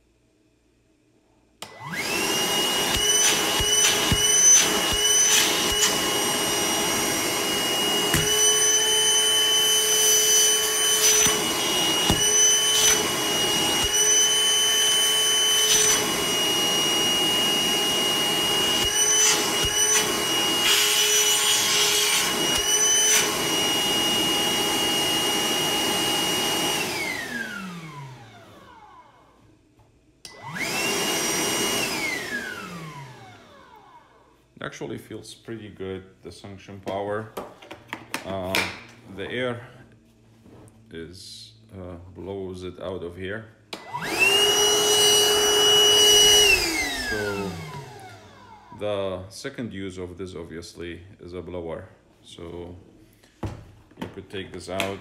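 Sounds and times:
wet dry vacuum whining: 0:01.6 - 0:29.6, 0:30.2 - 0:34.4, 0:43.7 - 0:49.3.

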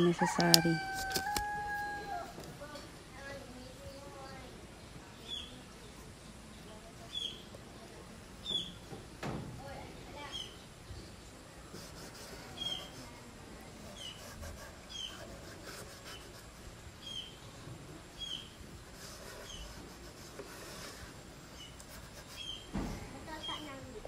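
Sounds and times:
small bird chirping: 0:05.0 - 0:05.9, 0:06.6 - 0:07.5, 0:08.4 - 0:08.8, 0:10.2 - 0:11.2, 0:14.9 - 0:15.3, 0:17.0 - 0:17.5, 0:18.1 - 0:18.6, 0:21.5 - 0:23.8.

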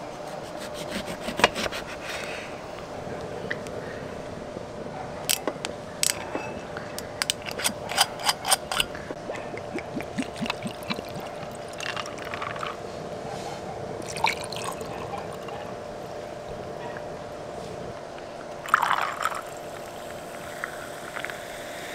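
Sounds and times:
faint hum: 0:00.0 - 0:21.9
glasses and utensils clinking: 0:06.1 - 0:09.0.

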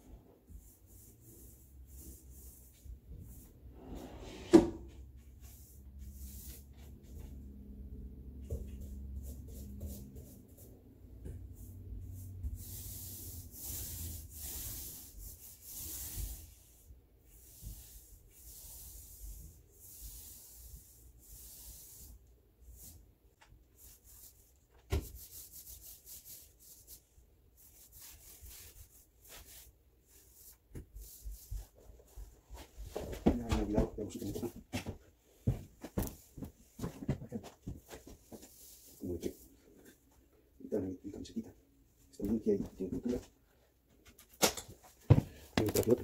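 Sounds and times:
hand sanding wood: 0:11.6 - 0:23.0.

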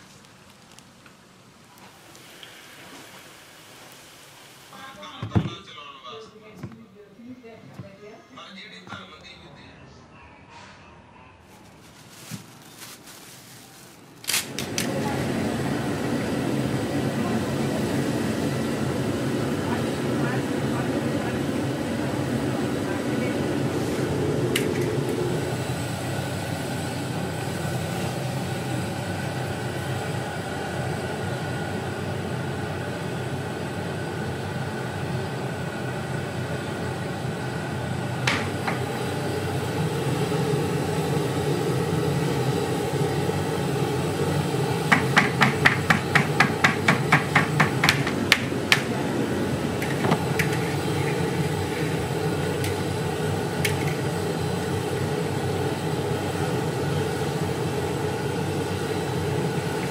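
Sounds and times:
oil frying: 0:00.0 - 0:05.3, 0:38.1 - 0:59.9.

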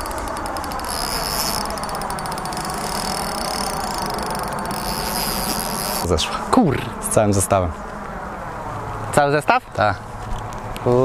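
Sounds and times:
fishing reel ticking rapidly: 0:00.0 - 0:06.1
high insect buzz: 0:00.0 - 0:06.1.

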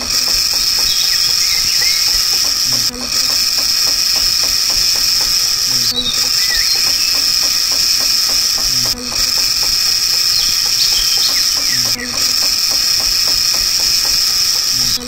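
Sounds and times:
fast even ticking: 0:00.0 - 0:15.0
small motor whining: 0:00.0 - 0:15.0.

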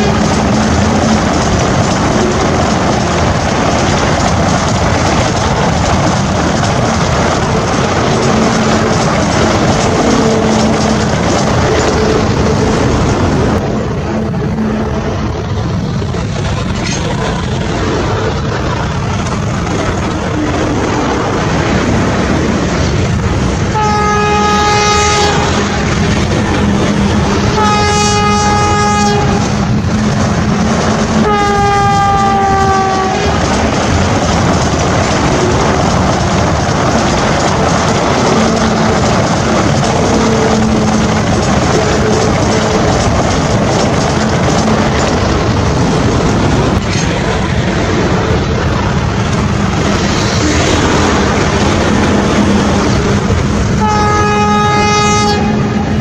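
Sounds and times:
passing train running noise: 0:00.0 - 0:56.0
train horn blasts: 0:23.7 - 0:25.9, 0:27.4 - 0:29.7, 0:31.2 - 0:33.4, 0:53.8 - 0:56.0.

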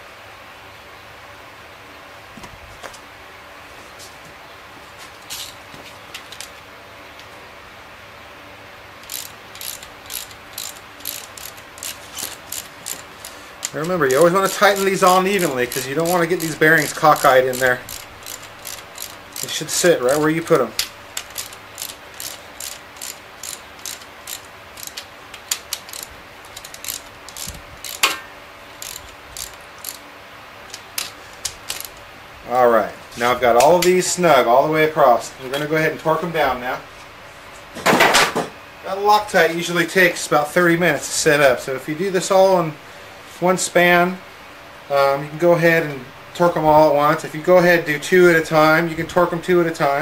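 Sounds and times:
ratchet wrench clicking: 0:09.0 - 0:30.0, 0:30.7 - 0:32.0.

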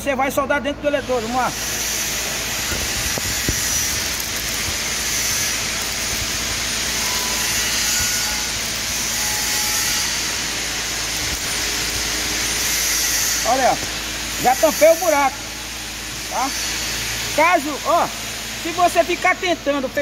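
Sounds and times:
welding arc crackling: 0:01.0 - 0:20.0
sharp welding pops: 0:01.6 - 0:15.2.

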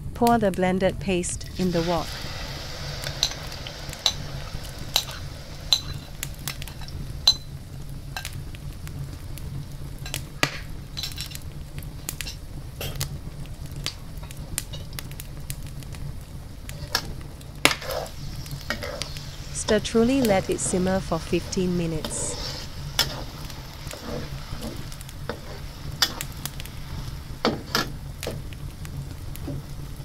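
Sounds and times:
paste sizzling in a wok: 0:01.4 - 0:30.0
utensil scraping against pan: 0:17.7 - 0:26.2.

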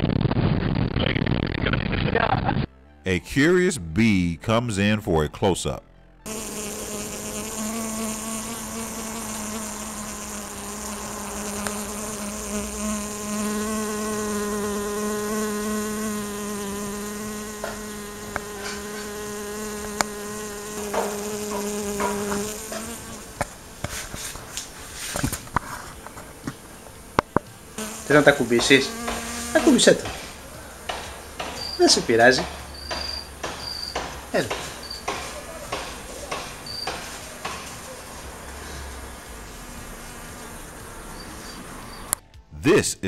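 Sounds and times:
bee buzzing in flight: 0:06.3 - 0:24.2, 0:27.0 - 0:32.0, 0:32.8 - 0:41.9.

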